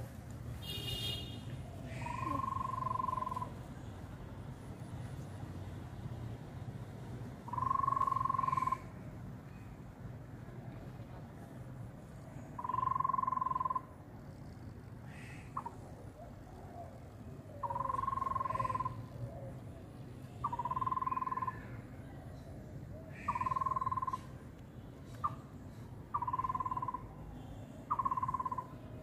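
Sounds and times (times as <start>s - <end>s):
frog trilling: 1.9s - 3.6s, 7.4s - 9.0s, 12.5s - 19.2s, 20.4s - 21.8s, 23.1s - 24.4s, 26.1s - 27.2s, 27.8s - 28.9s.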